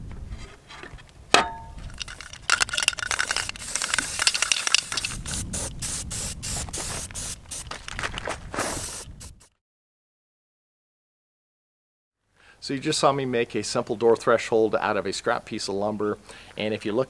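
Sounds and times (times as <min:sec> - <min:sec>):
spray can hissing: 0:01.9 - 0:07.9, 0:08.6 - 0:09.5.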